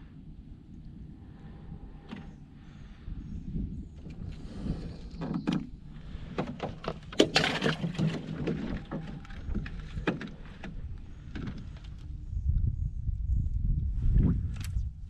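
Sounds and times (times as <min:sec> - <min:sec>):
knocks and clatter: 0:06.3 - 0:11.8.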